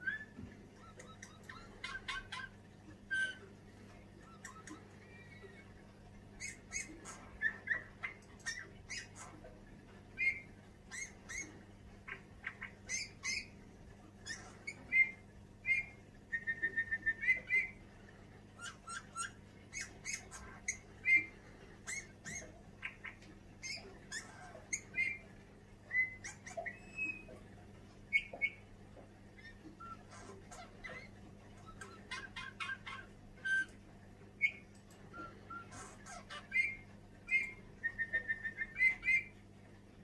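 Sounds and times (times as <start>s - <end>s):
bullfinch singing: 10.2s - 13.6s, 14.2s - 17.8s, 18.6s - 27.4s, 28.1s - 28.7s, 34.4s - 39.4s.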